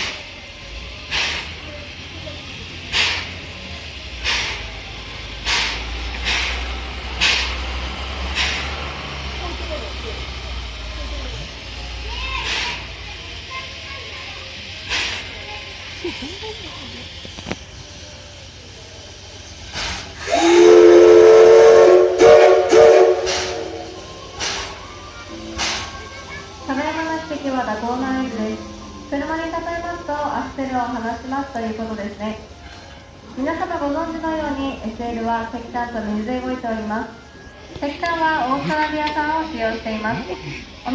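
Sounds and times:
steam locomotive hissing puffs: 0.0s - 40.9s
steam whistle blowing: 19.8s - 24.5s.

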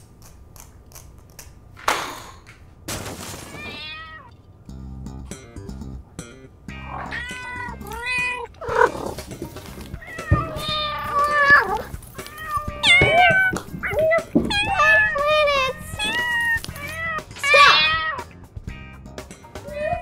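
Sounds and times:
cat meowing: 3.5s - 4.3s, 6.7s - 9.1s, 9.9s - 18.3s
background music: 4.6s - 20.0s.

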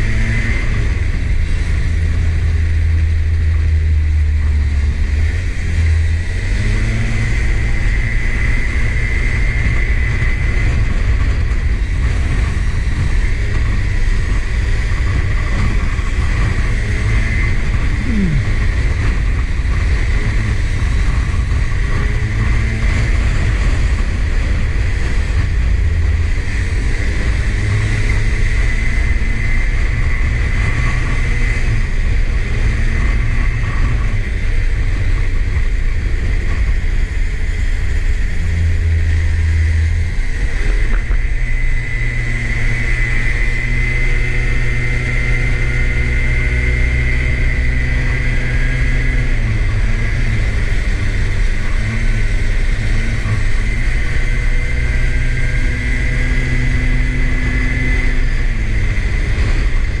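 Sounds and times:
high whine: 0.0s - 32.2s
go-kart engine rumbling: 0.0s - 60.0s.

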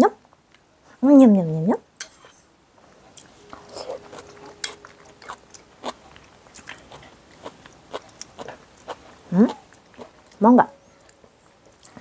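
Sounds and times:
chewing and lip smacks: 3.9s - 10.4s, 11.0s - 12.0s.

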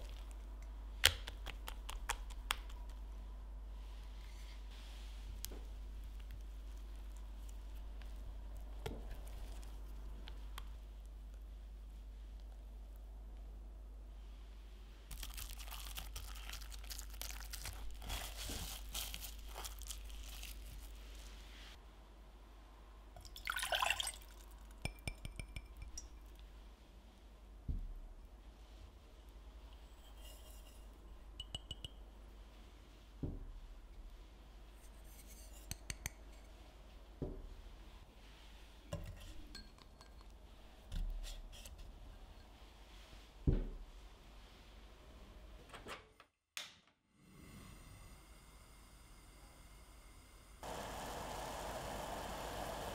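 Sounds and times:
cling film crinkling: 15.1s - 21.2s.

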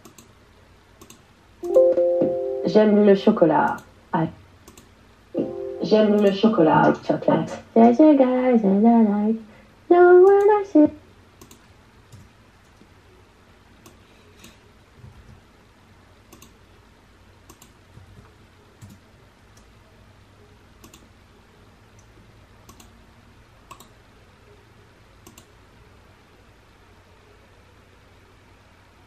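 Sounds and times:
computer mouse clicking: 0.0s - 0.3s, 1.0s - 1.2s, 4.6s - 4.9s, 11.4s - 12.8s, 13.8s - 14.6s, 16.3s - 16.6s, 17.4s - 19.7s, 20.8s - 21.1s, 22.0s - 22.9s, 23.7s - 24.0s, 25.2s - 25.5s
low room hum: 0.0s - 29.0s.

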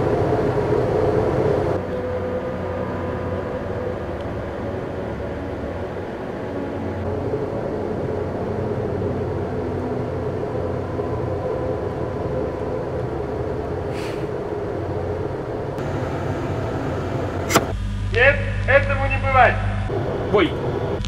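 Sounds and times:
low rumbling drone: 0.0s - 21.0s
short hiss: 13.9s - 14.3s
sharp click: 17.5s - 17.8s.

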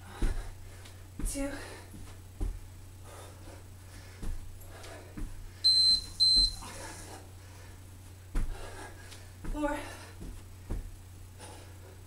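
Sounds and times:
dull thuds on carpet: 0.0s - 0.5s, 1.2s - 2.7s, 4.2s - 4.5s, 8.3s - 8.8s, 9.4s - 11.0s
steady low hum: 0.0s - 12.0s
short high electronic beeps: 5.7s - 6.6s.

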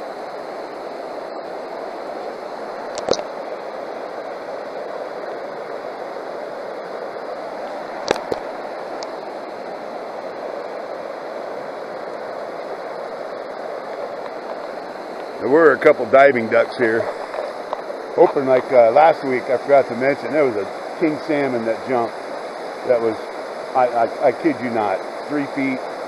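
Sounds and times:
river water rushing over rocks: 0.0s - 25.0s
sharp clicks: 2.9s - 3.2s.

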